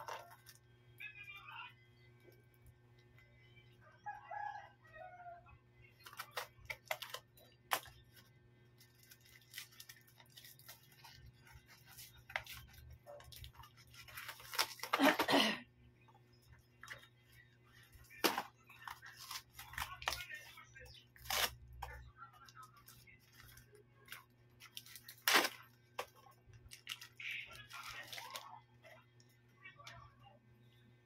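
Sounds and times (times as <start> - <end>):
paper package rustling: 6.0 - 15.5, 17.8 - 28.6.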